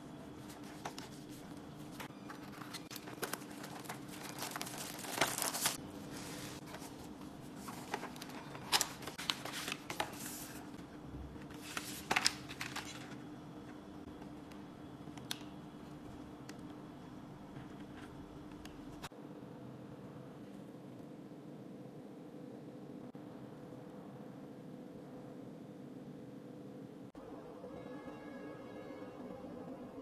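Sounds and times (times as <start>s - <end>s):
paper and card rustling: 0.2s - 10.8s, 11.4s - 13.2s.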